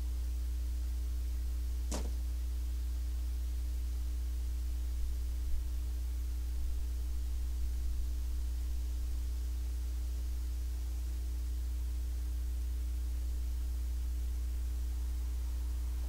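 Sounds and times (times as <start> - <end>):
steady low hum: 0.0 - 16.0
even hiss: 1.9 - 2.2.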